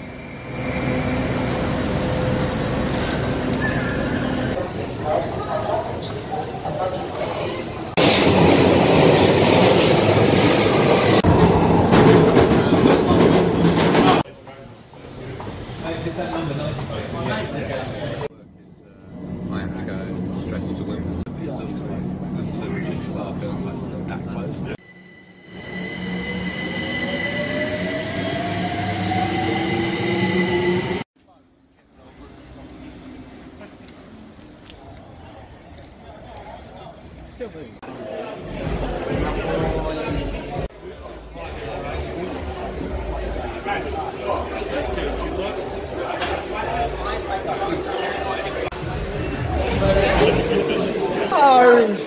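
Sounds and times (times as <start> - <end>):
wheels rumbling on rail: 0.0 - 14.3
train wheels rumbling on rail: 8.0 - 14.3
steady high-pitched tone: 24.8 - 29.5.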